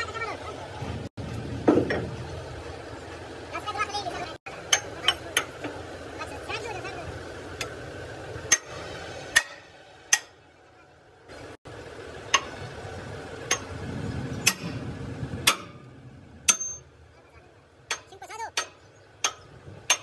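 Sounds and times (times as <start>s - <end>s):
steady background noise: 0.0s - 20.0s
metal striking metal: 8.4s - 10.4s, 14.4s - 17.0s.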